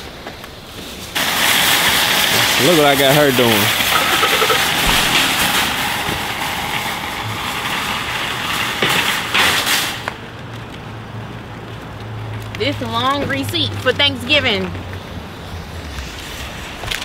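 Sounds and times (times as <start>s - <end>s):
shopping cart rattling on asphalt: 0.6s - 10.3s
cart clanking into corral: 1.2s - 10.2s.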